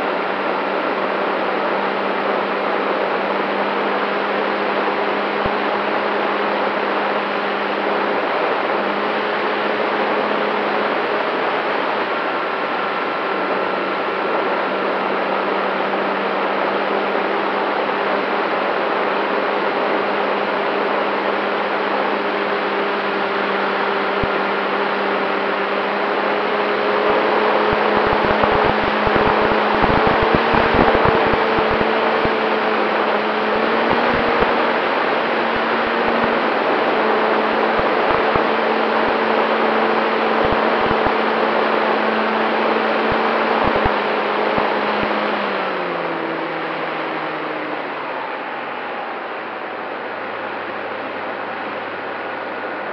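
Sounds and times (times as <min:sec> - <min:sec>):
wind rush: 0:26.8 - 0:41.7
wind thumps on microphone: 0:27.8 - 0:31.8.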